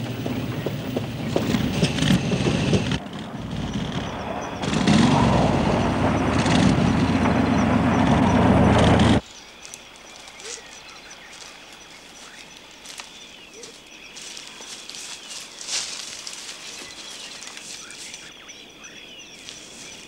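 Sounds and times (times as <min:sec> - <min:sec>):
car engine running: 0:00.0 - 0:09.2.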